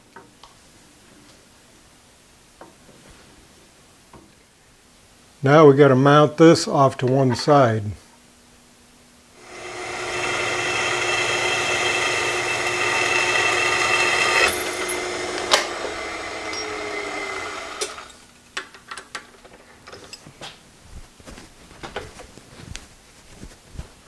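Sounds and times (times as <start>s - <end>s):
drill boring into metal: 9.4s - 18.2s
drill motor running: 9.4s - 18.2s.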